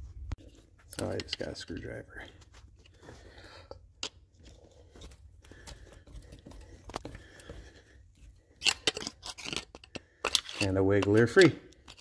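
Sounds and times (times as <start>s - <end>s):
screwdriver scraping metal: 8.6s - 12.0s.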